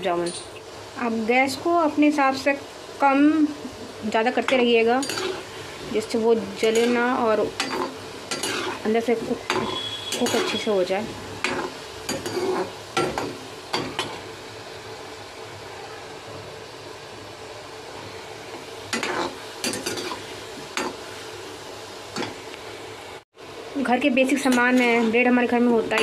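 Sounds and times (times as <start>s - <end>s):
deep-frying sizzle in hot oil: 0.0s - 26.0s
steel ladle scraping and clinking: 9.5s - 10.7s.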